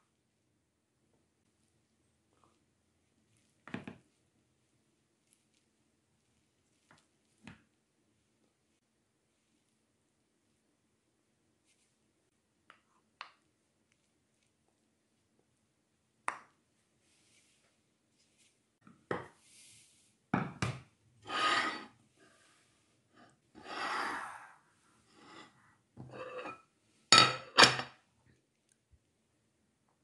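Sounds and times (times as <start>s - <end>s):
wooden spoon scraping a pot: 21.2s - 24.4s, 25.0s - 26.7s
dishes set down on stone: 27.1s - 28.0s.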